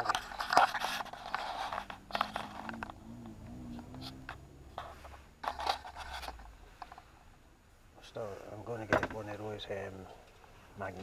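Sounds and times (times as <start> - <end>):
wood scraping: 0.0 - 7.1
low wavering hum: 1.8 - 5.2.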